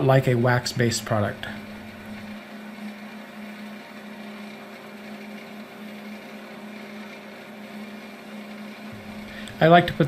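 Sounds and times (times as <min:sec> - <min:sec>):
wood lathe humming: 0:00.0 - 0:10.0.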